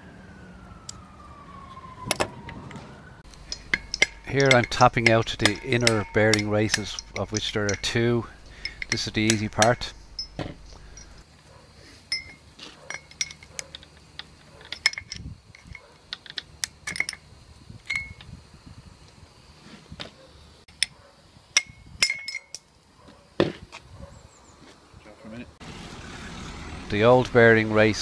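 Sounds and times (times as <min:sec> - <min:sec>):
hammer tapping metal: 0:03.3 - 0:11.2.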